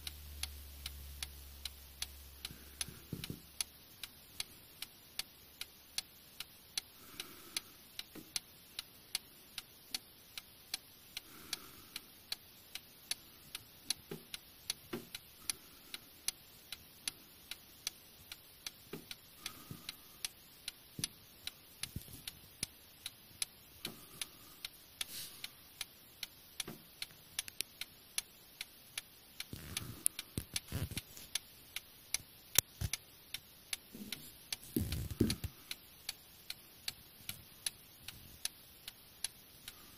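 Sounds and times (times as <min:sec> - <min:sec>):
clock ticking: 0:00.0 - 0:39.9.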